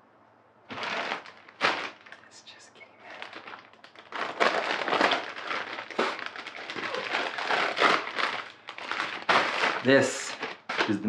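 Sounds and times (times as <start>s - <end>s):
package wrapping crinkling: 0.7s - 11.0s.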